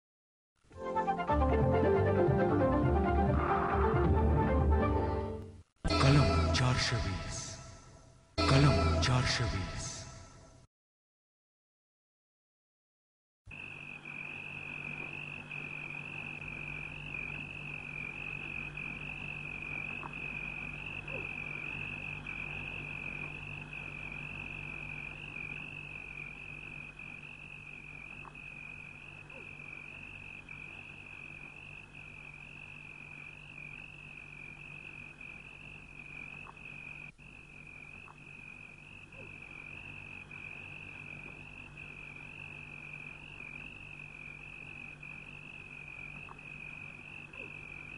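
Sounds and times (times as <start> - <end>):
low steady hum: 13.5 - 47.9.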